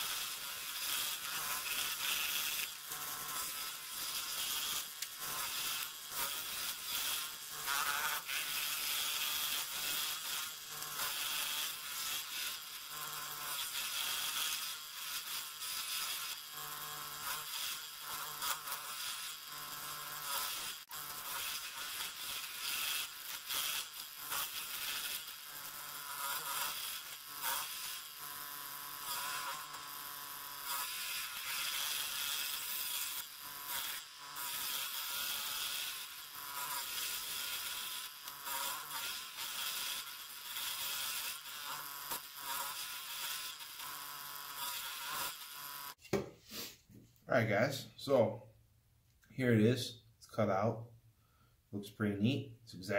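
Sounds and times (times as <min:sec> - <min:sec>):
scroll saw cutting wood: 0:00.0 - 0:46.7.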